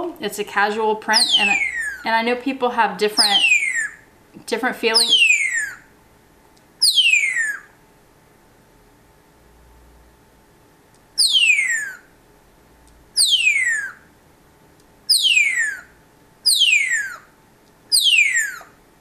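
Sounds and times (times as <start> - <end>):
parrot whistling: 1.1 - 2.1, 3.2 - 4.0, 5.0 - 5.9, 6.8 - 7.7, 11.2 - 12.1, 13.2 - 14.1, 15.1 - 17.3, 17.9 - 18.8.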